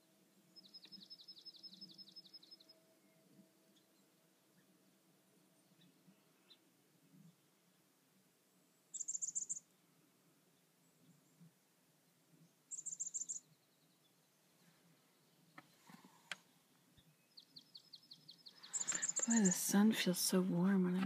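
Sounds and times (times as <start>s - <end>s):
high bird twittering: 9.0s - 9.6s, 12.7s - 13.5s, 17.5s - 19.8s
faint clicks: 15.5s - 16.5s, 18.7s - 19.6s
bird ticking notes: 18.6s - 19.7s.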